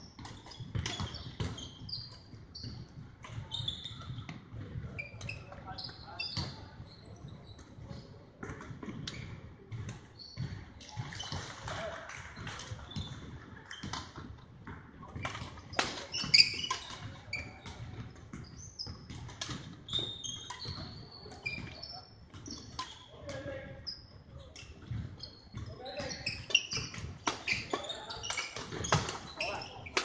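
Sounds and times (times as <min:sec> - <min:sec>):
shoes squeaking on wooden floor: 0:00.3 - 0:08.1, 0:15.0 - 0:30.0
rackets hitting shuttlecock: 0:15.1 - 0:23.5, 0:25.9 - 0:30.0.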